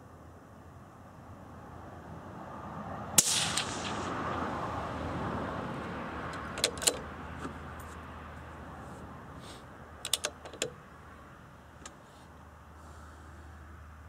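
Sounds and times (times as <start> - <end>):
broad rushing noise: 2.6 - 7.5
suppressed rifle shot: 3.2 - 4.5
rifle bolt metallic clicks: 6.3 - 7.0, 10.0 - 10.8.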